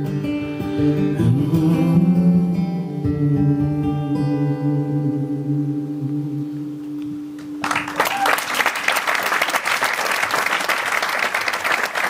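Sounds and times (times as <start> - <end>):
acoustic guitar chord ringing: 0.0 - 7.6
audience applause: 7.6 - 12.0.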